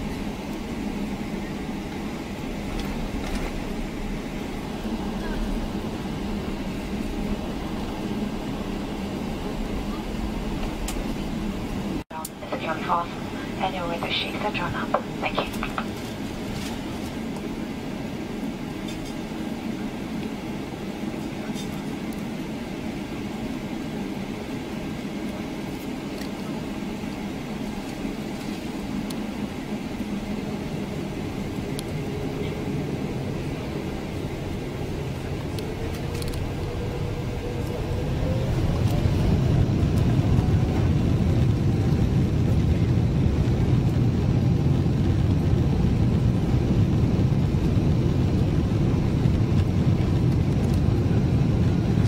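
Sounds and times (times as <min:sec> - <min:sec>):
airplane cabin rumble: 0:00.0 - 0:52.0.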